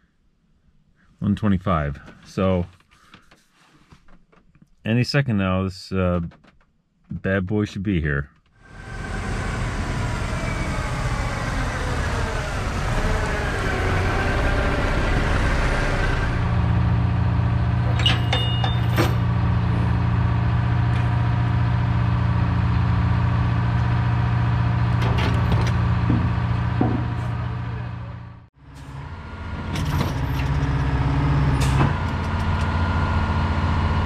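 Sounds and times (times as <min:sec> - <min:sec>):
diesel truck engine: 0:08.6 - 0:34.0.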